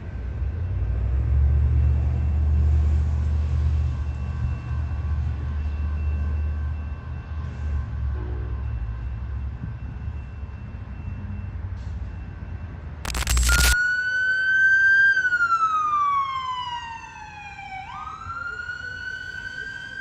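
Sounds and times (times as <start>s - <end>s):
brief noisy burst: 13.1s - 13.8s
emergency siren wailing: 13.8s - 20.0s.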